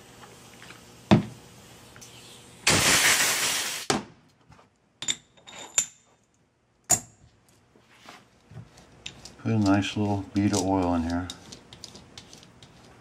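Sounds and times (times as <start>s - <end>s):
rag scrubbing: 7.9s - 13.0s.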